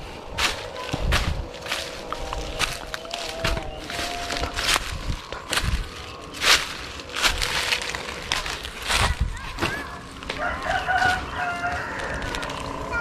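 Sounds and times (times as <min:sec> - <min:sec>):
rustling in dry leaf litter: 0:00.0 - 0:12.9
rooster crowing: 0:10.3 - 0:13.0.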